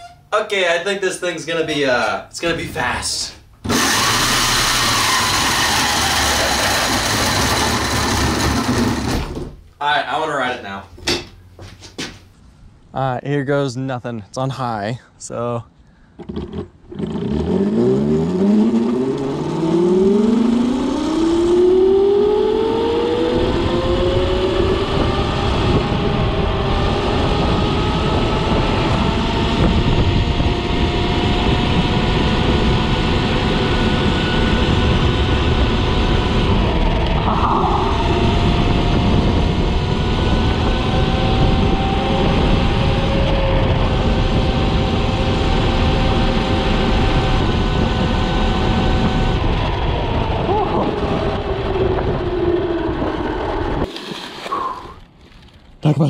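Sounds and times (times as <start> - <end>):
electric motor whining: 3.6 - 9.4
wind and road noise: 15.7 - 56.0.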